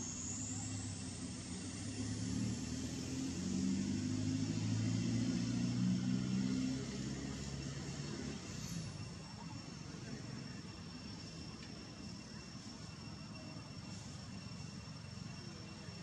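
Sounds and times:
motor vehicle going by: 0.0s - 9.4s
steady high hiss: 0.0s - 16.0s.

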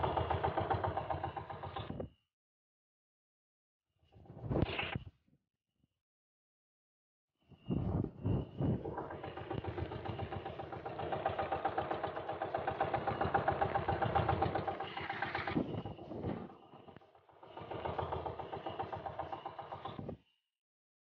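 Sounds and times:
small boat engine running: 0.0s - 2.0s, 8.8s - 20.2s.

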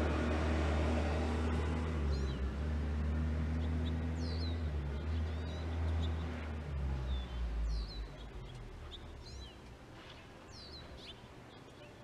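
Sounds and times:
small bird chirping: 3.5s - 6.5s, 7.1s - 12.0s.

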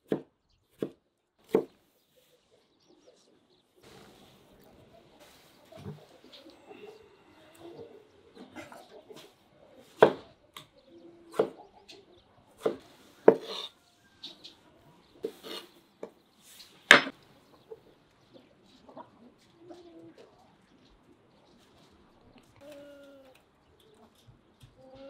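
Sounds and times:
knife cutting on wooden board: 12.6s - 13.7s, 15.2s - 15.7s.

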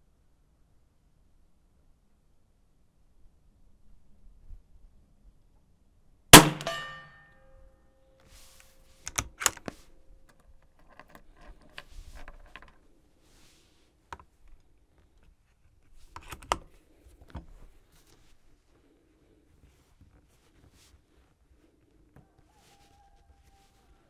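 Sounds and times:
rifle shot with ringing tail: 6.4s - 7.3s
cartridge handling: 8.4s - 12.9s, 14.1s - 18.3s
rifle bolt clicks: 9.1s - 9.8s.

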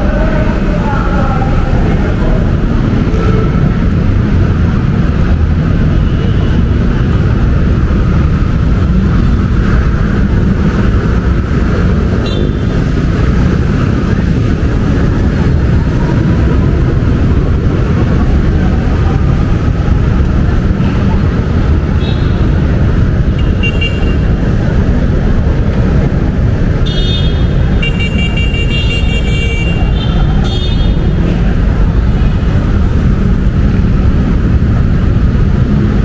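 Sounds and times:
road traffic rumble: 0.0s - 36.0s.

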